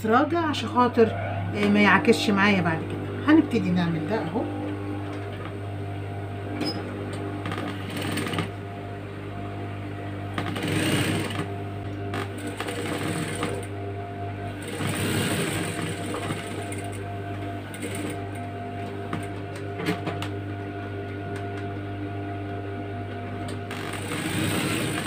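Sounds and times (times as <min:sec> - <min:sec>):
sewing machine motor humming: 0:01.8 - 0:21.8, 0:23.1 - 0:25.0
sewing machine stitching: 0:06.6 - 0:08.5, 0:10.4 - 0:11.5, 0:12.1 - 0:13.7, 0:14.6 - 0:17.0, 0:17.7 - 0:18.4, 0:23.7 - 0:25.0.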